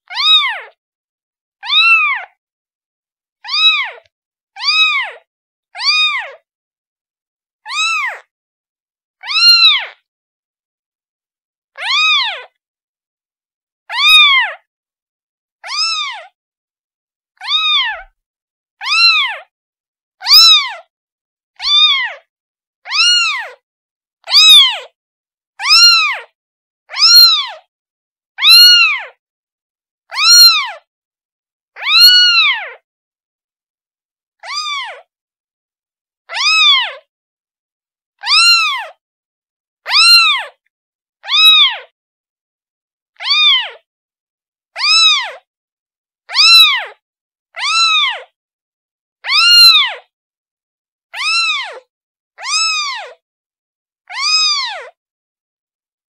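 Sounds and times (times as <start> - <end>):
kitten meowing: 0.1 - 0.7, 1.6 - 2.4, 3.4 - 6.4, 7.7 - 8.3, 9.2 - 10.0, 11.8 - 12.5, 13.9 - 14.6, 15.6 - 16.4, 17.4 - 18.2, 18.8 - 19.5, 20.2 - 20.9, 21.6 - 22.3, 22.9 - 23.6, 24.2 - 24.9, 25.6 - 27.7, 28.4 - 29.2, 30.1 - 30.9, 31.8 - 32.8, 34.4 - 35.1, 36.3 - 37.1, 38.2 - 39.0, 39.9 - 40.6, 41.2 - 41.9, 43.2 - 43.8, 44.8 - 45.5, 46.3 - 47.0, 47.6 - 48.3, 49.2 - 50.1, 51.2 - 53.2, 54.1 - 54.9.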